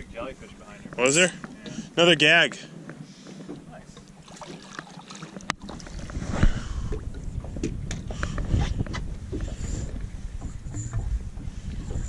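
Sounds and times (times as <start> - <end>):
fish splashing in water: 4.2 - 6.2
steady low rumble: 5.4 - 12.0.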